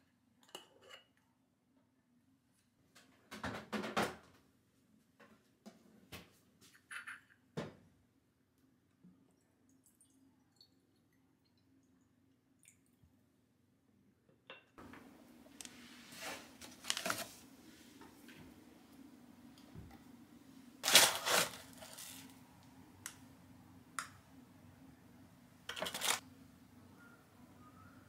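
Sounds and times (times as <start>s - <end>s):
faint steady hum: 7.4s - 28.0s.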